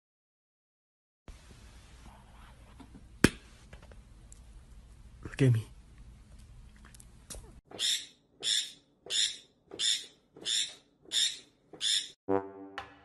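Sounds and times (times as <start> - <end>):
parrot screeching: 7.8 - 12.2
brass fanfare: 12.3 - 13.0.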